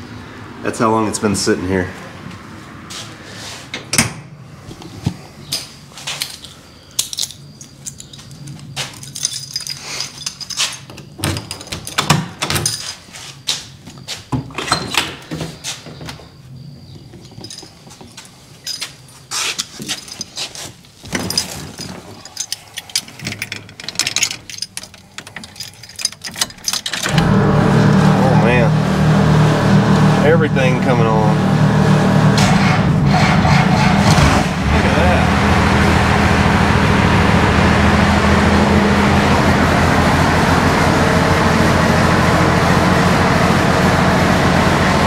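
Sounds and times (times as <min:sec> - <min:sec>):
keys jangling: 0:06.1 - 0:13.2, 0:17.2 - 0:27.1.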